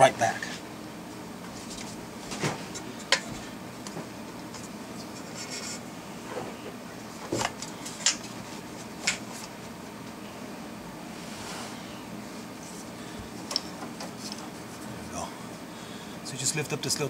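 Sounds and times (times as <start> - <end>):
rubbing and scratching: 5.0 - 5.8.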